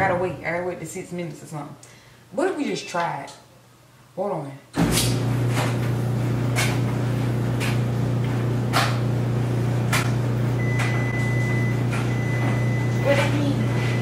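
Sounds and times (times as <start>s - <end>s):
washer knocking: 0.0s - 0.7s, 4.8s - 14.0s
washer motor humming: 4.8s - 14.0s.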